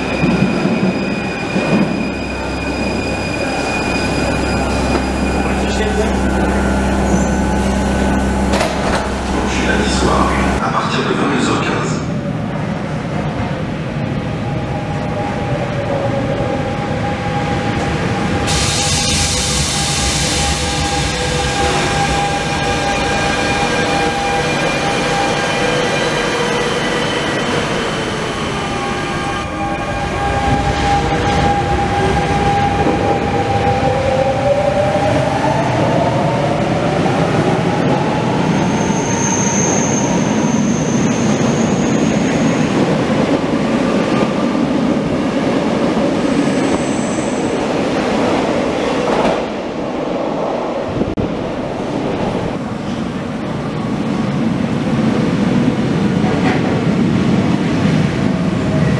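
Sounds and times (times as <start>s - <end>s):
high squeal: 0.0s - 8.4s, 38.5s - 42.8s
train wheels rumbling and clattering: 0.0s - 11.8s, 14.9s - 58.9s.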